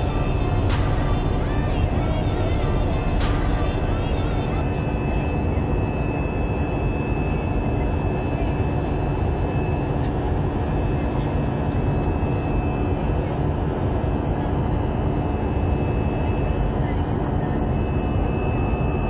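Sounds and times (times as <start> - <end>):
faint steady hum: 0.0 - 19.0
jet engine and airflow rush: 0.0 - 19.0
thin high whine: 0.0 - 19.0.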